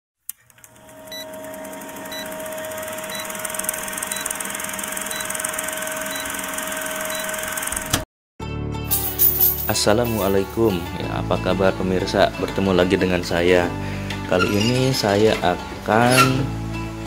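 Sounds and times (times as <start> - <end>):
film projector whir: 0.4 - 8.0.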